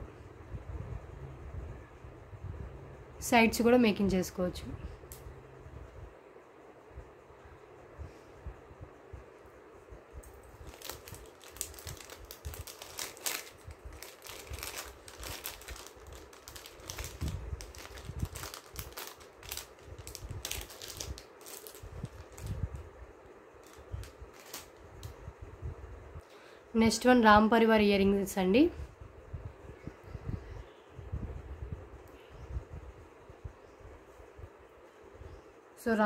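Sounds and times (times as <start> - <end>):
plastic packaging crinkling: 10.3 - 22.9, 23.6 - 25.2.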